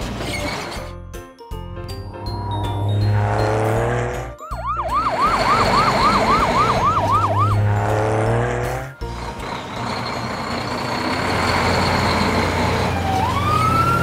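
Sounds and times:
cartoon siren yelping: 4.5s - 7.7s.

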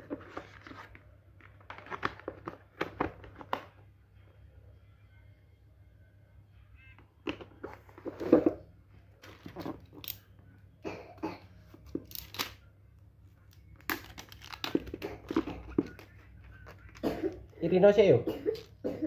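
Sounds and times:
plastic wrap crinkling and tearing: 13.8s - 16.1s.

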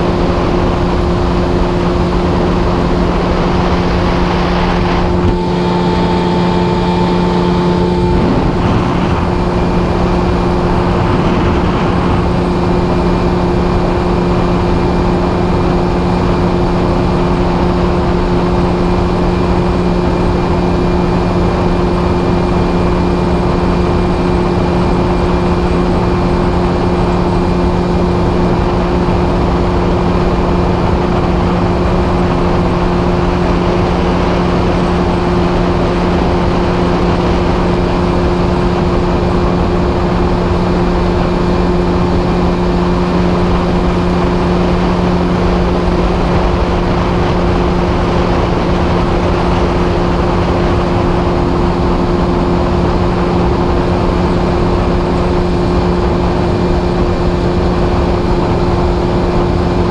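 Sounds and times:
outboard motor droning: 0.0s - 59.9s
wind and water rushing: 0.0s - 59.9s
brief higher tone: 4.2s - 10.8s.

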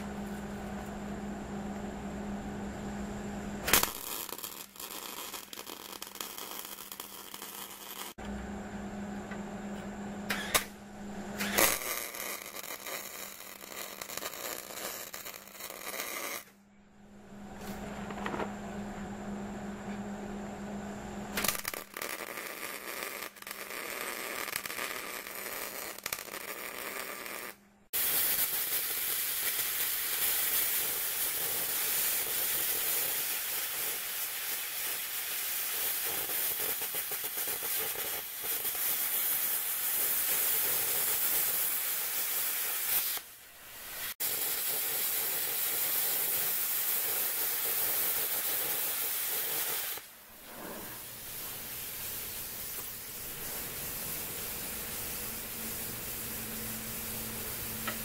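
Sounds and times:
plasma cutter hissing: 3.6s - 8.2s, 11.4s - 16.5s, 21.4s - 58.0s
welding arc crackling: 3.6s - 8.2s, 11.4s - 16.6s, 21.3s - 50.1s, 51.0s - 58.0s.

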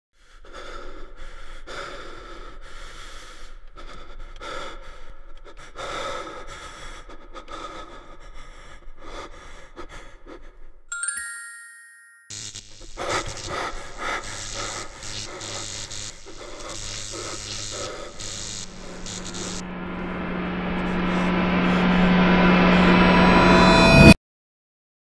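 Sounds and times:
steady low hum: 12.3s - 24.2s
dark horror intro music: 18.1s - 24.2s
bright ringing strike: 19.4s - 24.2s.

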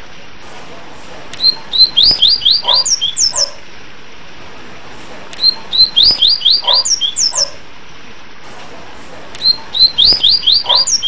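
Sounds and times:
steady hiss: 0.0s - 2.2s
bird whistle song: 1.4s - 3.6s, 5.4s - 7.6s, 9.4s - 11.0s.

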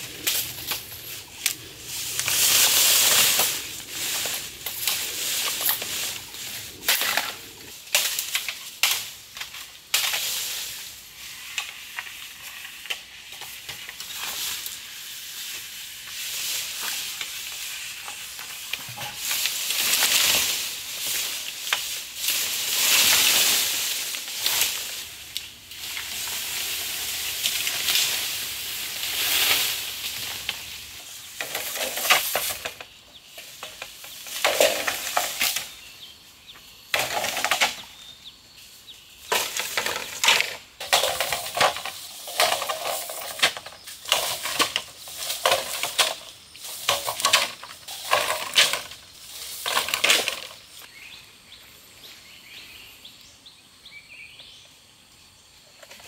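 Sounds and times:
bamboo foliage rustling: 0.0s - 54.7s.

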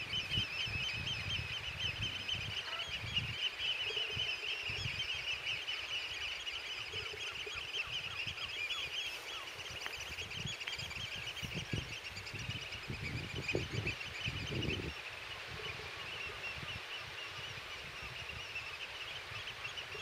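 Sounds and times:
wind gusts on microphone: 0.0s - 5.2s, 9.6s - 18.7s
flock of birds calling: 0.0s - 20.0s.

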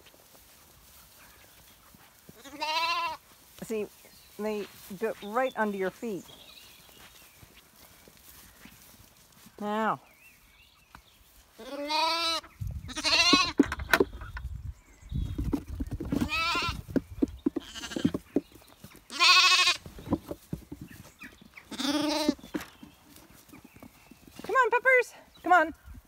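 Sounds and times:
rustling: 0.0s - 14.4s, 15.0s - 25.0s
lambs bleating: 2.4s - 3.2s, 11.6s - 13.6s, 16.2s - 16.8s, 17.6s - 18.2s, 19.1s - 19.9s, 21.6s - 22.5s.

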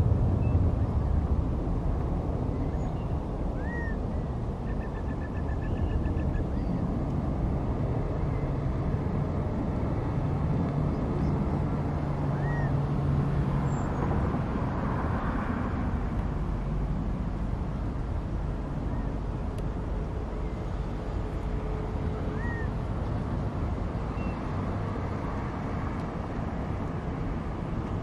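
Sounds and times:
low engine hum: 0.0s - 28.0s
traffic noise: 0.0s - 28.0s
faint bird chirps: 2.5s - 4.0s, 4.6s - 6.8s, 22.3s - 22.7s, 24.1s - 24.4s.

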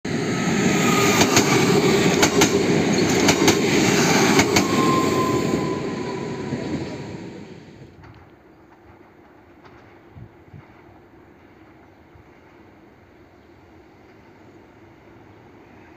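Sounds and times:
train rumbling past: 0.1s - 15.9s
train wheels clicking: 0.9s - 6.0s, 8.0s - 12.7s.

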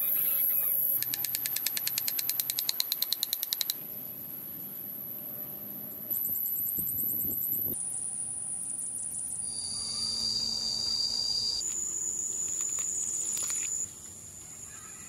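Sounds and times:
insects clicking rapidly: 0.1s - 3.9s
insects buzzing: 6.1s - 15.0s.

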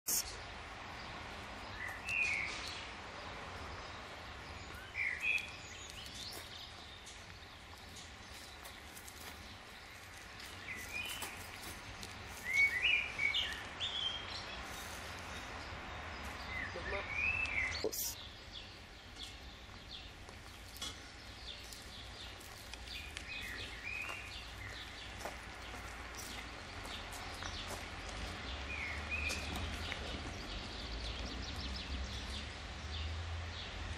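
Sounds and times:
birds chirping: 0.0s - 33.9s.

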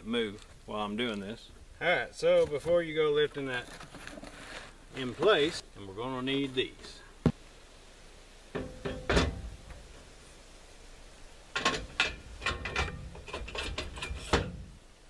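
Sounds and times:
steel tubes knocking and clanking: 8.5s - 10.0s, 11.5s - 14.8s.

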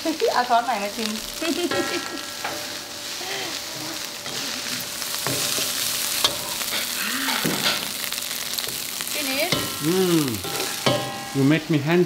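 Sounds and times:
rice sizzling in a wok: 0.0s - 12.0s
ladle scraping a wok: 9.5s - 11.4s.

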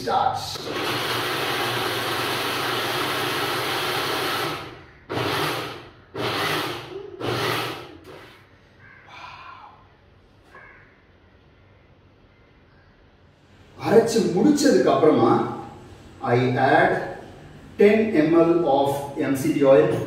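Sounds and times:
mixer grinder motor: 0.6s - 8.4s.

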